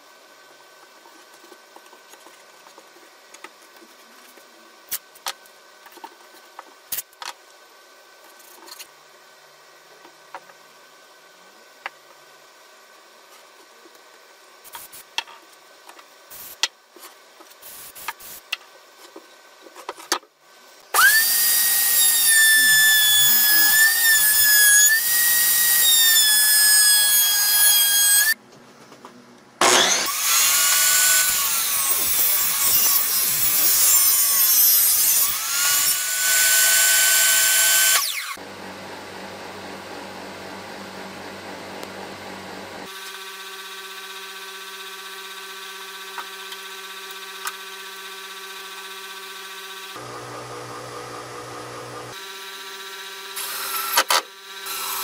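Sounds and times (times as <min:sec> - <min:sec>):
router high whine: 0:20.9 - 0:28.4, 0:29.6 - 0:55.0.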